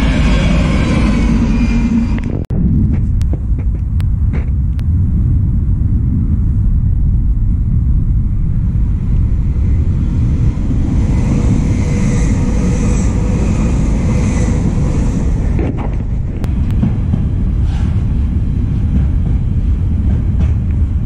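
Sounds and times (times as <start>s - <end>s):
wind on microphone: 0.0s - 21.0s
passenger train hiss: 9.7s - 15.6s, 16.9s - 21.0s.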